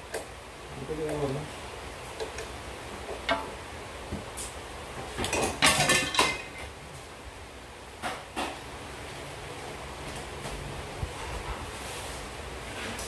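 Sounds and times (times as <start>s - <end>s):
hard parts clattering: 5.3s - 6.7s.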